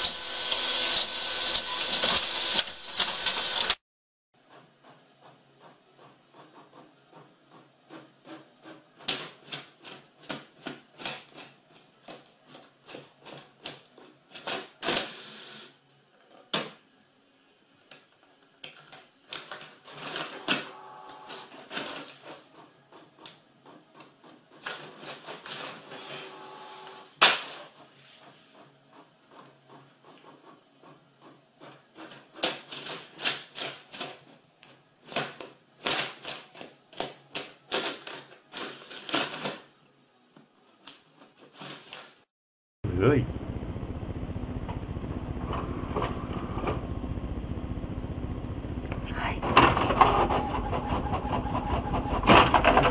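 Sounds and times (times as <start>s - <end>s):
printer motor whirring: 0.0s - 3.8s, 20.0s - 33.4s.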